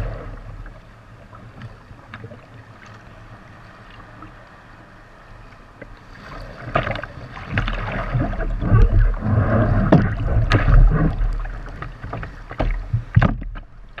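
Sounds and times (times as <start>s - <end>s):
deep rumbling wash: 0.0s - 14.0s
paddle strokes splashing: 0.0s - 14.0s
water slapping against hull: 5.7s - 14.0s.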